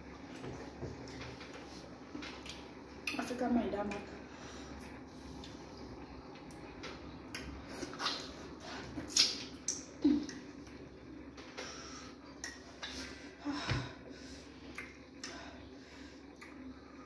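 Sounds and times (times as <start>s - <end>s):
wet eating smacks and squelches: 6.3s - 10.8s.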